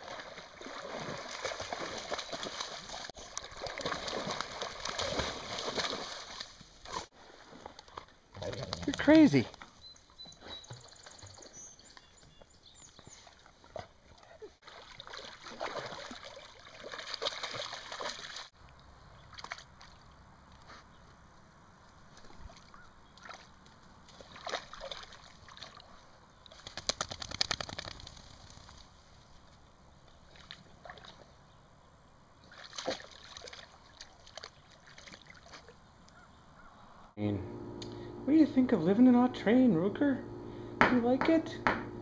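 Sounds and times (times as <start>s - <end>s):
water splashing and sloshing: 0.0s - 9.3s, 13.2s - 20.7s, 22.0s - 26.7s, 30.1s - 31.5s, 32.4s - 36.0s.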